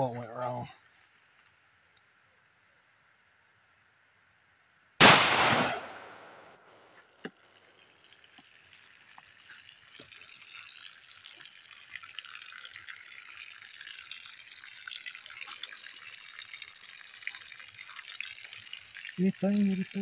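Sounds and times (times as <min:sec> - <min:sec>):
pistol shot: 0:05.0 - 0:06.6
water trickling from a jug: 0:06.7 - 0:20.0.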